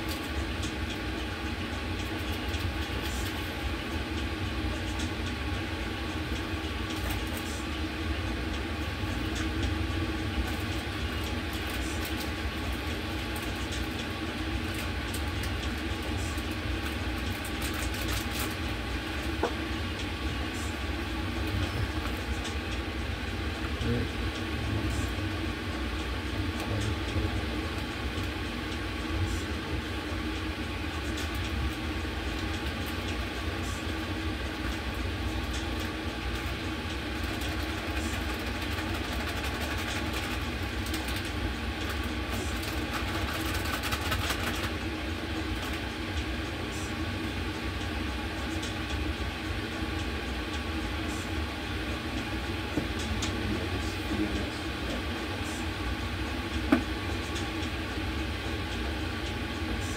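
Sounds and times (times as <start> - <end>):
machinery rumble and hum: 0.0 - 59.9.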